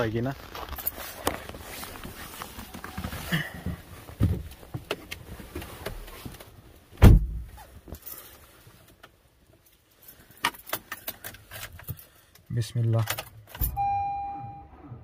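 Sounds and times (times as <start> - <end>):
car door shutting: 7.0 - 7.5.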